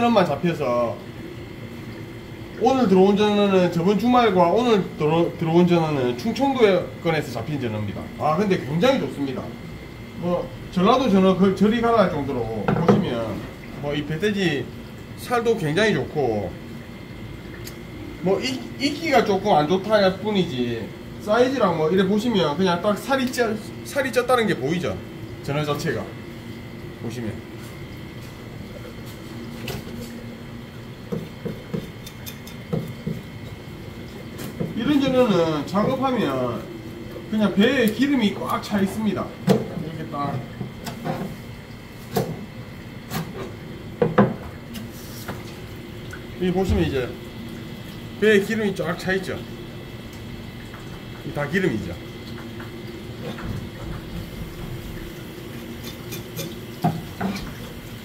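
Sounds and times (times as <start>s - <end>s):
steady background hum: 0.0s - 58.0s.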